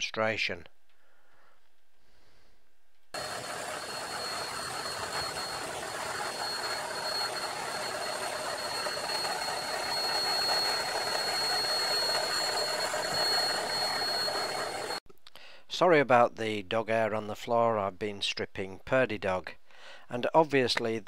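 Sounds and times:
cordless drill whining: 0:03.2 - 0:15.0.

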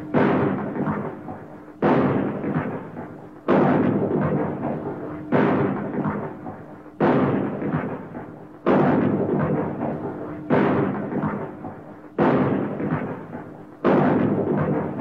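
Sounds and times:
shotgun blasts with echo: 0:00.0 - 0:15.0.

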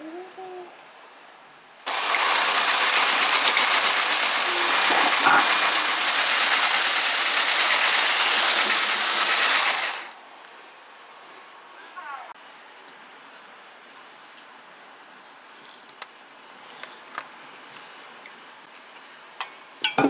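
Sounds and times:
electric hand mixer whipping cream: 0:01.9 - 0:10.1.

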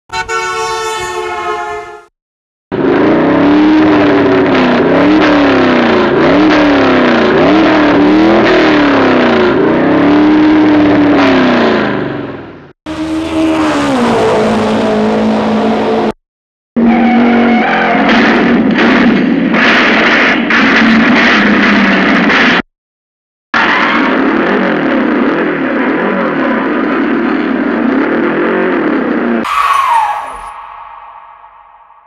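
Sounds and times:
car engine revving: 0:02.7 - 0:12.2, 0:12.9 - 0:16.2
steady held tone: 0:29.5 - 0:32.0.

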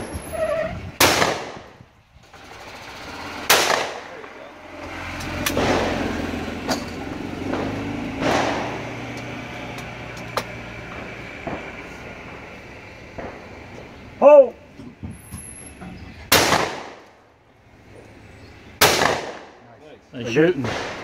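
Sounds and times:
shotgun shots echoing: 0:01.0 - 0:01.7, 0:03.4 - 0:04.4, 0:16.3 - 0:17.0, 0:18.8 - 0:19.6, 0:20.6 - 0:21.0.

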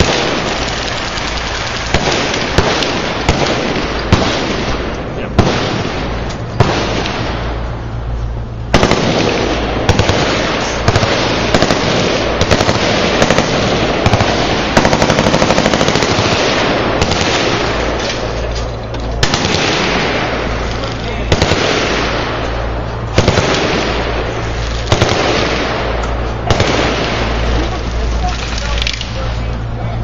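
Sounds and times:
automatic gunfire burst: 0:00.0 - 0:07.3, 0:08.7 - 0:18.3, 0:19.2 - 0:20.7, 0:21.3 - 0:22.4, 0:23.1 - 0:27.9
machine guns firing: 0:00.0 - 0:07.6, 0:08.7 - 0:29.4.

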